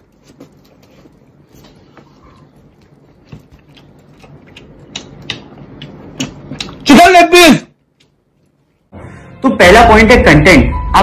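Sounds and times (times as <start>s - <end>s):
man chewing food: 0.0s - 6.9s, 7.8s - 8.9s.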